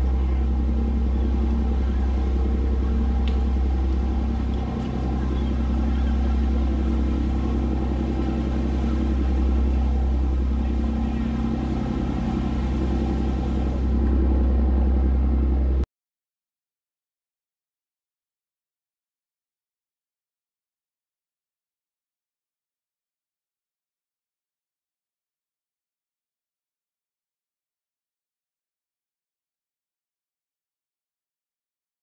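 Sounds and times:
boat engine droning: 0.0s - 15.9s.

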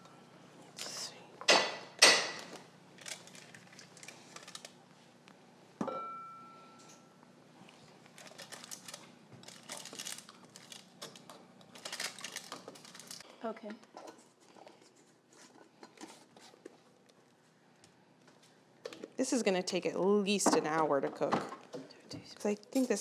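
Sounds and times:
metal knock ringing bowl: 5.8s - 6.5s.

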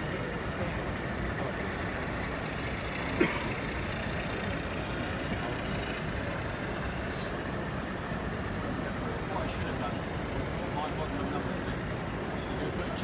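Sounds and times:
exhibition hall background noise: 0.0s - 13.0s
model train running on track: 0.0s - 13.0s.

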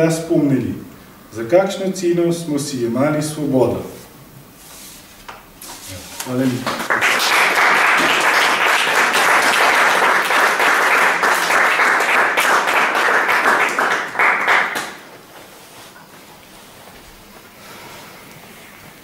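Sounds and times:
audience applauding: 6.3s - 15.2s.

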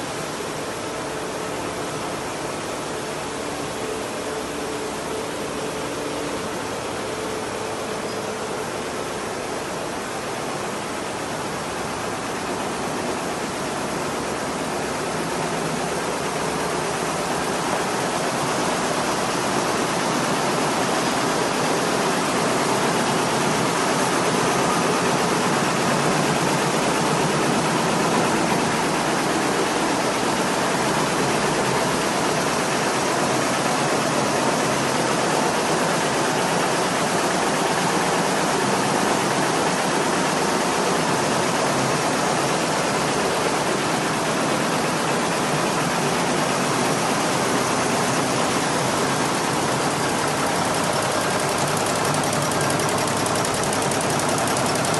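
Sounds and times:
quilting machines clattering: 15.0s - 54.9s.

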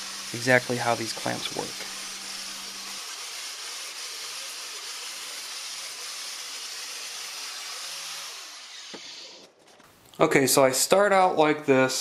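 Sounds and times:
angle grinder grinding metal: 0.0s - 9.8s.

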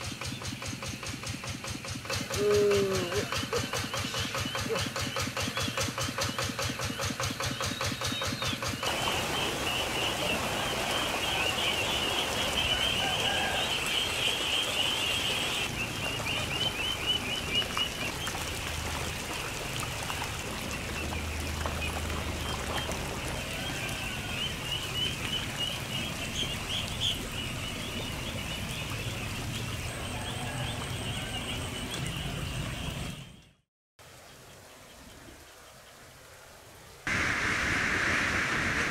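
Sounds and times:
ducklings peeping: 0.0s - 18.4s, 20.0s - 33.5s
water splashing: 8.8s - 31.0s.

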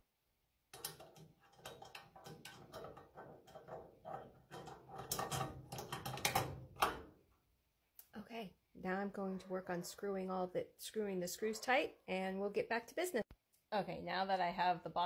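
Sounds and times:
plastic lamp holder clicks and rattles: 0.8s - 7.1s.

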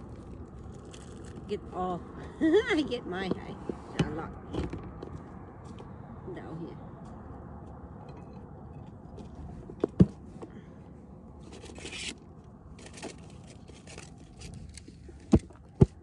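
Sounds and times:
rustling and scraping in cooler: 0.0s - 1.9s, 2.8s - 5.8s, 8.9s - 10.5s, 11.4s - 16.0s.

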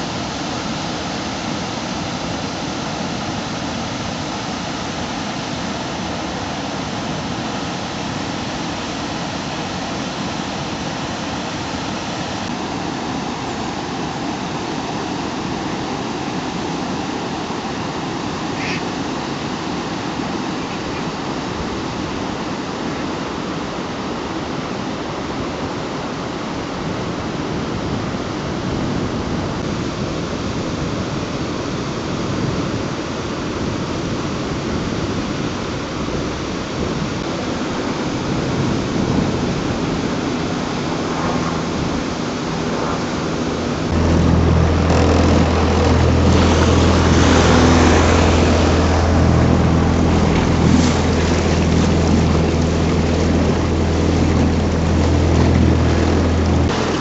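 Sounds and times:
rushing water: 0.0s - 57.0s
wind: 0.0s - 57.0s
boat engine humming: 37.2s - 57.0s.

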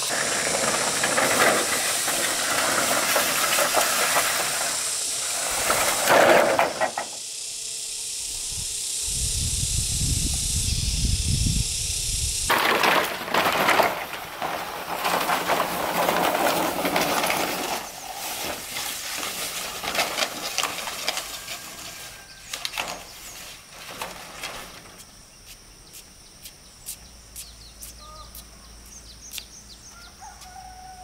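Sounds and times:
bamboo poles clattering together: 0.0s - 7.2s, 12.5s - 25.0s
bamboo poles scraping over ground: 0.0s - 7.2s, 12.5s - 25.1s
faint bird chirps: 25.8s - 31.0s.

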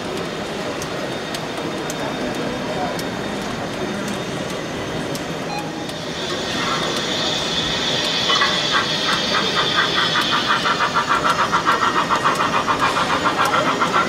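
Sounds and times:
model train running: 0.0s - 14.0s
hiss: 5.4s - 14.0s.

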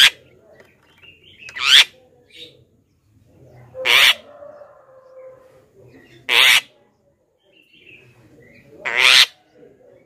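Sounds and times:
bird giving harsh calls: 1.4s - 2.0s, 3.8s - 4.3s, 6.2s - 6.7s, 8.8s - 9.4s.

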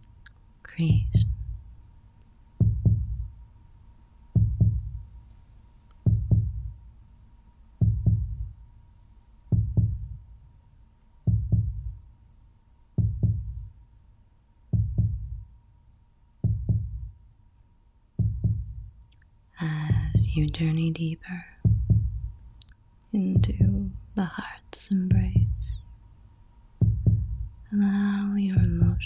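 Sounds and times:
heartbeat thumps: 0.8s - 1.7s, 2.6s - 3.4s, 4.4s - 5.1s, 6.0s - 6.8s, 7.8s - 8.6s, 9.5s - 10.3s, 11.3s - 12.0s, 13.0s - 13.7s, 14.7s - 15.5s, 16.4s - 17.2s, 18.2s - 19.0s, 19.7s - 22.6s, 23.2s - 24.2s, 25.1s - 25.8s, 26.8s - 27.7s, 28.5s - 29.0s.

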